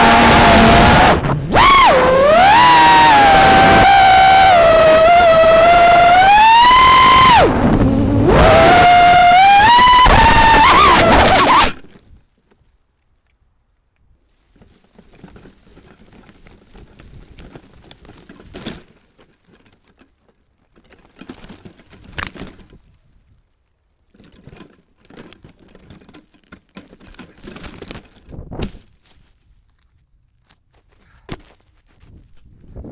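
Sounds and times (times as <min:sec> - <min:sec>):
leaves and twigs rustling: 0:11.6 - 0:32.8.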